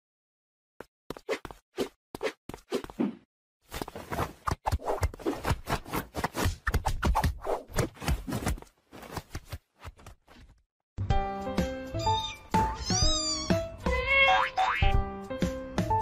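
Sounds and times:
music: 0:11.0 - 0:16.0.

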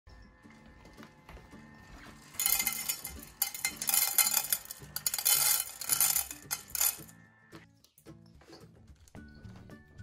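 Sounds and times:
kibble rattling into metal bowl: 0:02.3 - 0:07.1.

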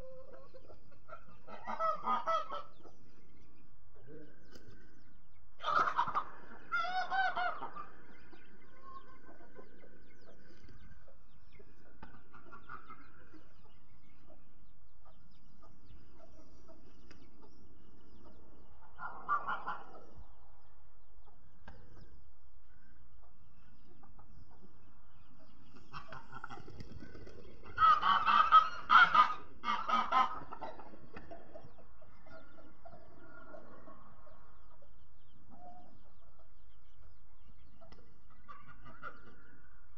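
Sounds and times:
poultry clucking and honking: 0:00.0 - 0:39.9.

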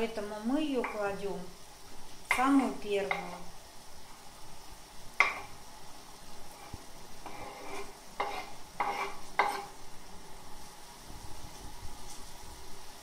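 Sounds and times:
faint sizzle: 0:00.0 - 0:13.0
knife scraping cutting board: 0:06.5 - 0:09.8.

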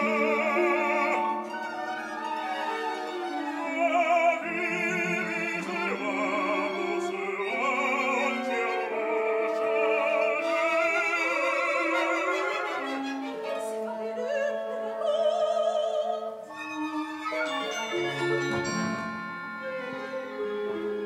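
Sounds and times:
man singing opera: 0:00.0 - 0:01.7, 0:03.4 - 0:16.3
instrumental accompaniment: 0:00.0 - 0:21.0.

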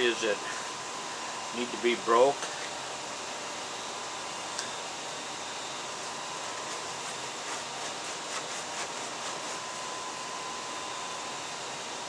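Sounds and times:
hide scraping over blade: 0:06.0 - 0:10.0.

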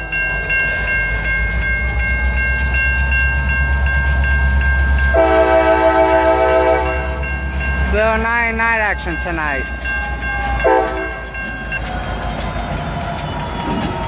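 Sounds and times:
crossing signal bell ringing: 0:00.0 - 0:14.0
diesel locomotive rumbling: 0:00.0 - 0:14.0
train air horn: 0:05.2 - 0:07.2, 0:10.6 - 0:11.1.

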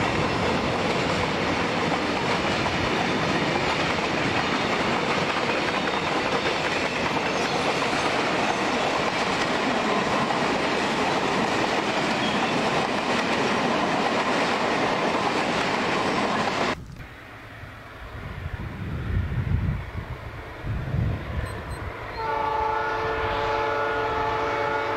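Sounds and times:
train wheels rumbling on rails: 0:00.0 - 0:17.1
diesel locomotives rumbling: 0:00.0 - 0:24.9.

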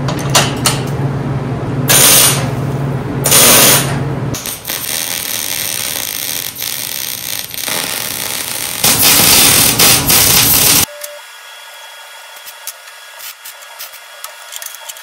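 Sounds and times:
welder crackling: 0:01.9 - 0:02.5, 0:03.3 - 0:10.9.

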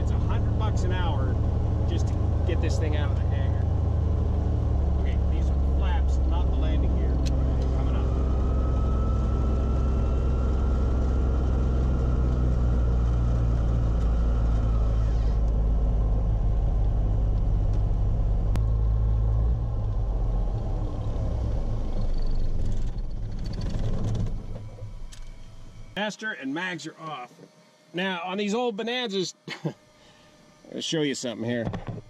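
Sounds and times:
piston aircraft engine idling: 0:00.0 - 0:19.2.

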